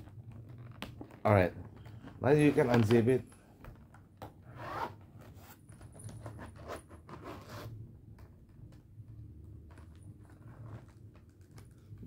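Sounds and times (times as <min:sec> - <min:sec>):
plastic rubbing: 0:00.0 - 0:12.0
zipper rasping open: 0:04.4 - 0:07.8, 0:09.8 - 0:11.1.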